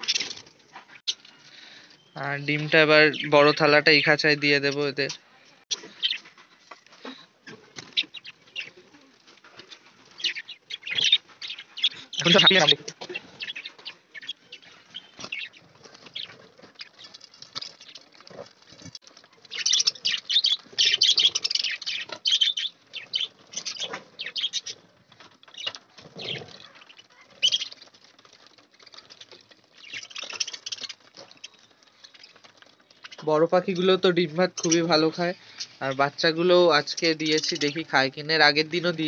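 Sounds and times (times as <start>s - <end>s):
wings fluttering: 0.0s - 1.9s, 3.2s - 39.0s
budgerigars chirping: 7.9s - 8.8s, 10.1s - 17.1s, 19.5s - 27.8s.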